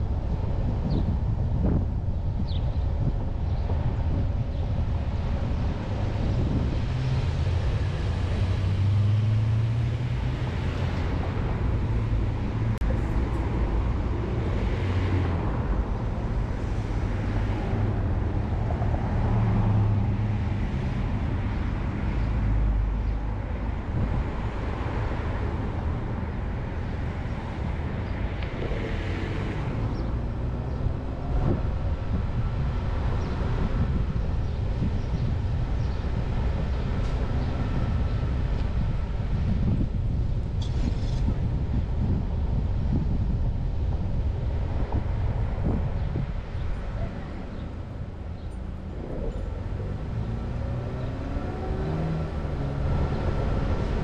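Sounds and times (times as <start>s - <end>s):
tyre and road noise: 0.0s - 54.0s
car engine hum: 41.3s - 54.0s.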